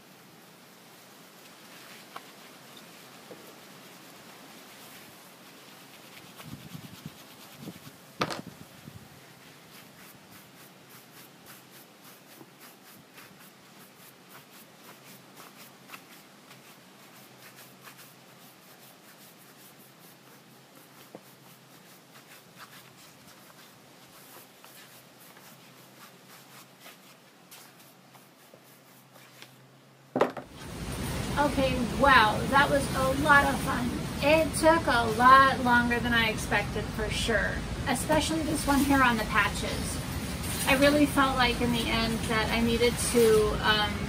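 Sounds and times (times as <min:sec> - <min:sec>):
wooden tool rubbing leather: 0:01.7 - 0:08.6, 0:09.2 - 0:29.6.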